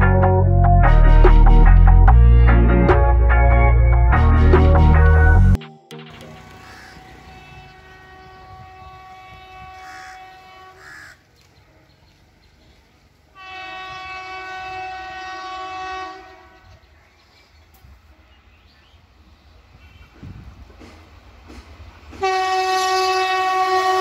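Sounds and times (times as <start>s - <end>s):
locomotive horn blasts: 6.4s - 11.0s, 13.3s - 16.9s, 22.2s - 24.0s.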